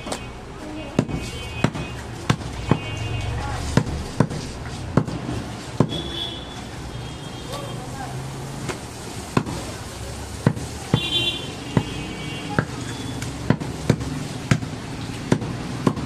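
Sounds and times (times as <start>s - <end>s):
cleaver chopping meat on wood: 1.0s - 2.9s, 3.7s - 6.1s, 9.3s - 9.7s, 10.4s - 11.1s, 11.7s - 16.0s.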